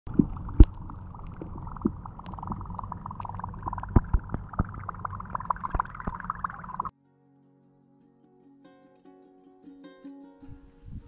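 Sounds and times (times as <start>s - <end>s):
water lapping against boat: 0.0s - 6.9s.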